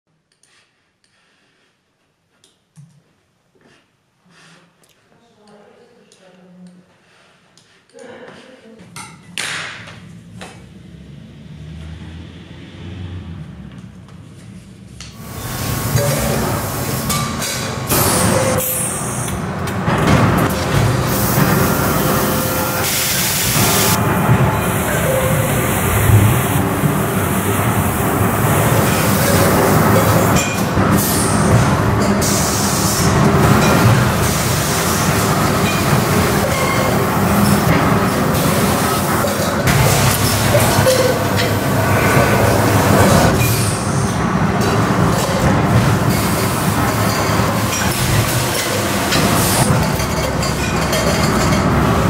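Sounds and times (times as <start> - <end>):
conveyor rumbling: 9.8 - 52.0.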